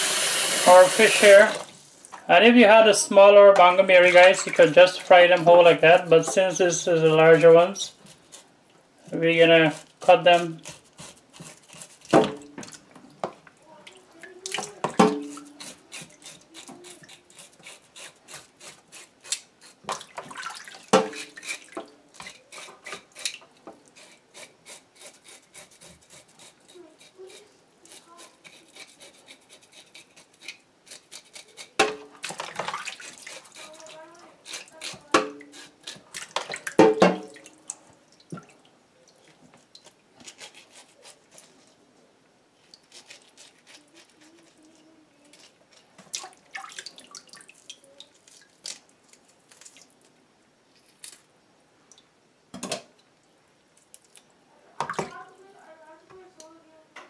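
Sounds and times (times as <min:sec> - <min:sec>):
water splashing in a basin: 0:19.9 - 0:22.0, 0:31.9 - 0:33.8, 0:46.1 - 0:48.8.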